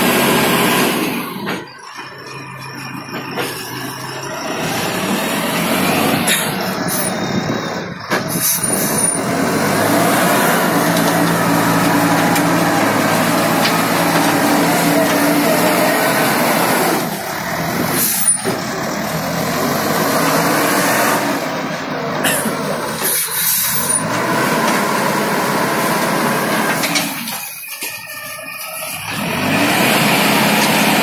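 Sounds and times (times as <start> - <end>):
diesel engine under load: 0.0 - 31.0
loader bucket digging: 1.0 - 31.0.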